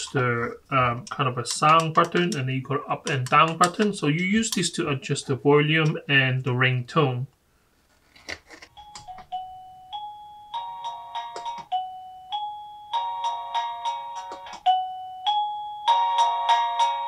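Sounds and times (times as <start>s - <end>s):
doorbell chime ringtone: 8.8s - 17.0s.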